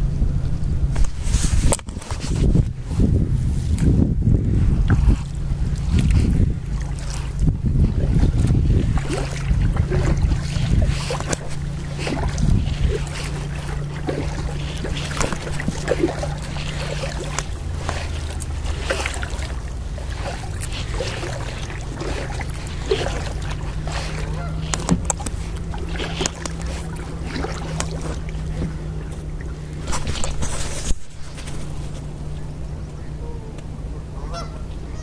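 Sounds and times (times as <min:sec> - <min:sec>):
kayak paddle splashing: 0:00.9 - 0:35.0
water dripping and lapping: 0:01.0 - 0:34.9
geese honking: 0:09.0 - 0:29.7, 0:32.3 - 0:35.0.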